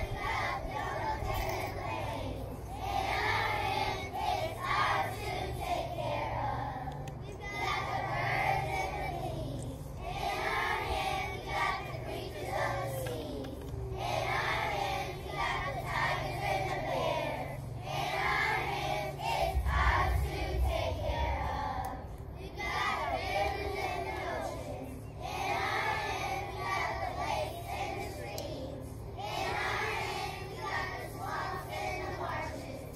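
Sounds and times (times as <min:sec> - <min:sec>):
low rumble: 0:00.0 - 0:25.5
children singing in chorus: 0:00.0 - 0:32.9.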